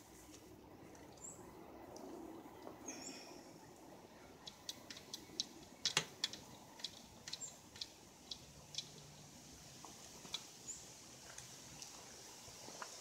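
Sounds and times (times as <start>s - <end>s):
suspension clicks and ticks: 4.4s - 9.1s, 9.8s - 10.5s.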